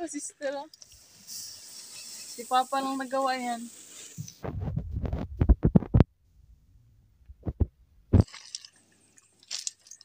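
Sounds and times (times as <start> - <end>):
rumbling thumps on microphone: 4.2 - 6.6, 7.2 - 8.3.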